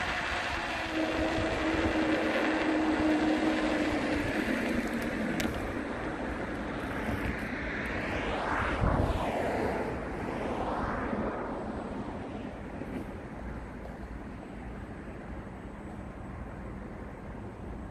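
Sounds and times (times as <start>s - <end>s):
vehicle passing close by: 0.0s - 13.2s
wind rumble on microphone: 0.0s - 15.5s
engine hum: 0.0s - 17.9s
street traffic noise: 0.0s - 17.9s.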